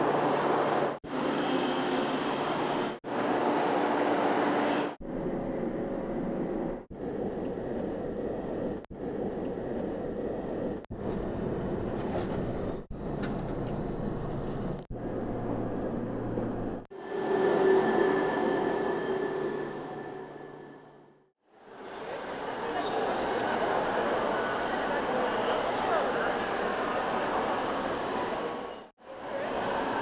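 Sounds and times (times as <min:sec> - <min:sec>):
train and station hum: 0:00.0 - 0:30.0
high-speed train passing: 0:16.2 - 0:21.3.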